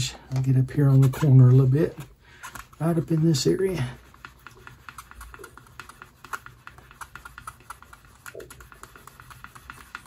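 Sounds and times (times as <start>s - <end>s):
tool rubbing leather edge: 2.6s - 10.0s
small rapid pops: 4.2s - 10.0s.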